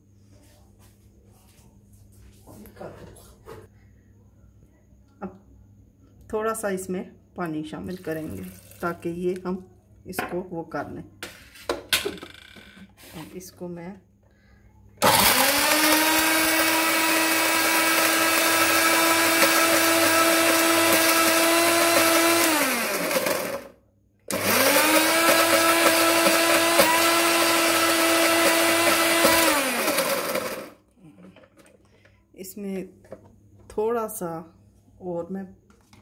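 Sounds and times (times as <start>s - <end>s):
electric blender motor whine: 15.0s - 30.8s.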